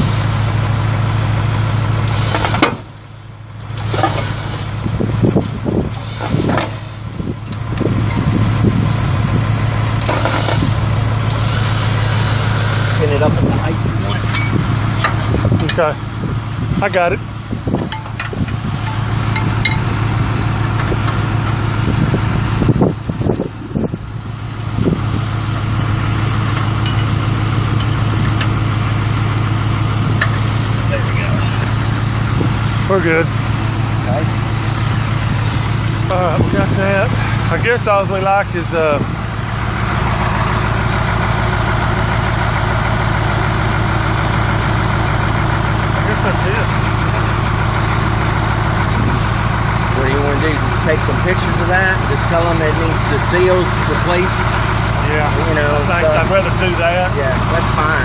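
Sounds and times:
diesel truck engine idling: 0.0 - 58.0
knocks and clatter: 17.7 - 20.0.

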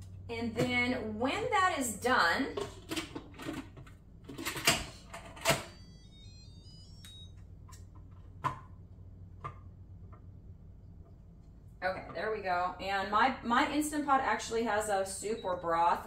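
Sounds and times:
electronic chime beeps: 5.7 - 7.4, 15.1 - 16.0.

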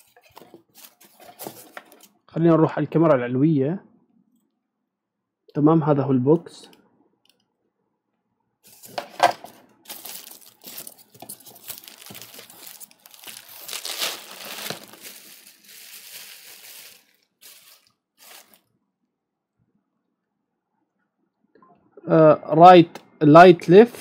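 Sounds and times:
bubble wrap crinkling: 8.7 - 18.7
polystyrene foam crunching: 9.9 - 18.6.

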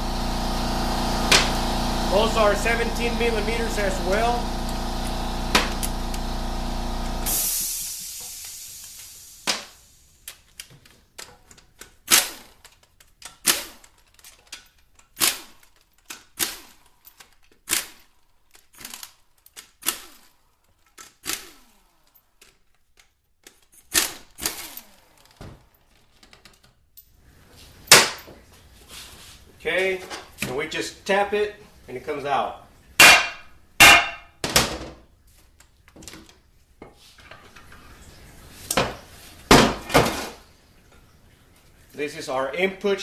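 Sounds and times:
cordless power tool whirr: 0.0 - 9.4, 21.3 - 22.2, 24.2 - 25.8.

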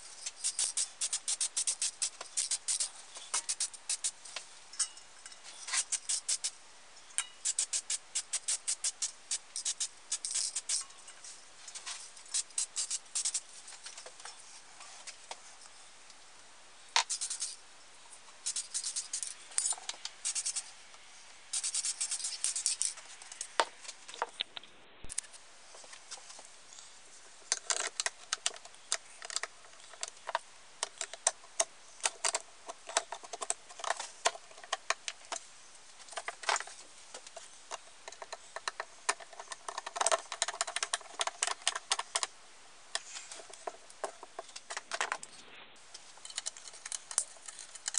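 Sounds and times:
small metal parts clicking: 0.2 - 4.1, 7.2 - 10.9, 17.0 - 17.6, 18.4 - 20.7, 21.5 - 23.6, 37.7 - 42.3, 45.9 - 47.9.

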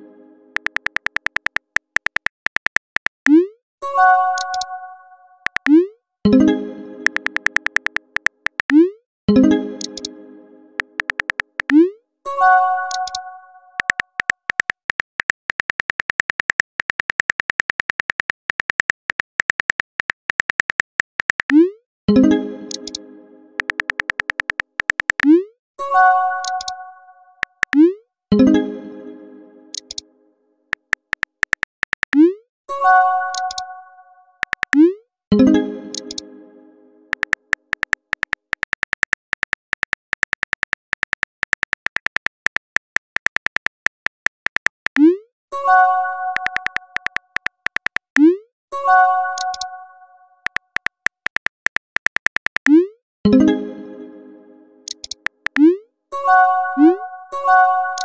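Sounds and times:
phone keyboard key clicks: 0.6 - 3.3, 5.5 - 5.7, 7.0 - 8.8, 10.8 - 11.8, 13.8 - 21.6, 22.7 - 23.0, 23.6 - 25.3, 29.8 - 30.0, 30.8 - 32.2, 34.4 - 34.8, 35.9 - 36.2, 37.1 - 45.0, 46.4 - 48.2, 50.5 - 52.7, 54.9 - 55.6.

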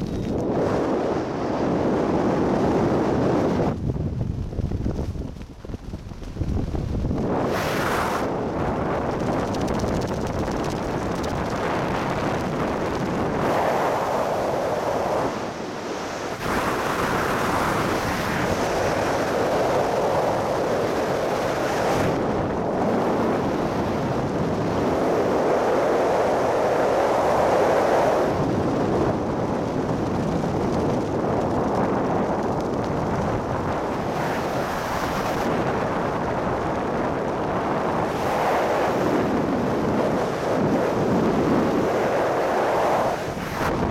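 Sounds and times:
wind rushing over microphone: 0.0 - 43.9.

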